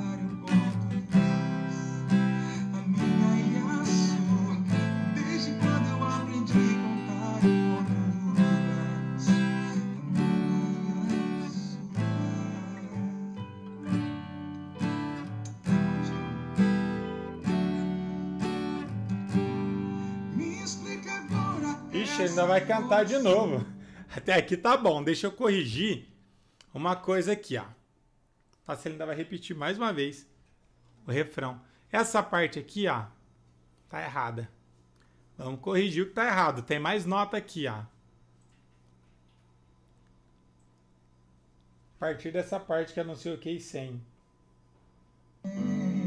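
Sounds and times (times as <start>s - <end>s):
acoustic guitar strumming: 0.0s - 24.1s, 45.4s - 46.0s.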